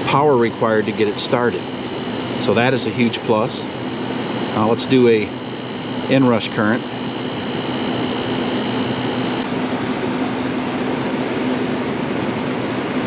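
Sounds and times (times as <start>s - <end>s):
air conditioner humming: 0.0s - 13.0s.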